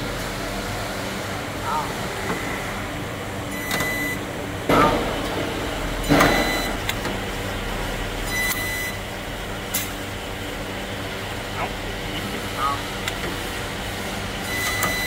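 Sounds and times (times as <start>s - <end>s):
steady electrical hum: 0.0s - 15.0s
brief beep: 3.5s - 4.2s, 6.1s - 6.8s.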